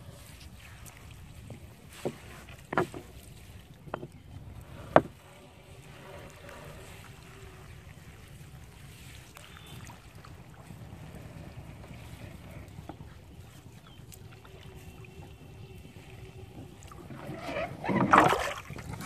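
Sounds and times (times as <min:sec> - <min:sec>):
low wind rumble: 0:00.0 - 0:19.0.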